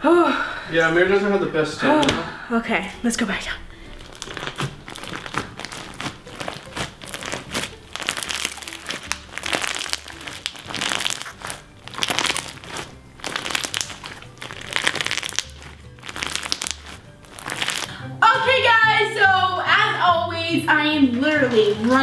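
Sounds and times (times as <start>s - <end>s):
soft background music: 0.0s - 22.0s
slime crackling and crunching: 3.9s - 18.0s.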